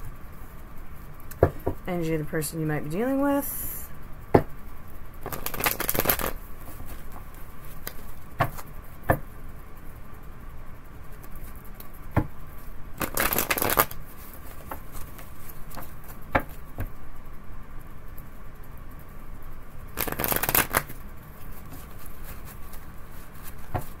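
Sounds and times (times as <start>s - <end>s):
cards tapping and snapping: 5.2s - 6.4s, 13.0s - 14.0s, 20.0s - 21.0s
cards riffling: 5.2s - 8.7s, 13.0s - 15.9s, 20.0s - 21.0s.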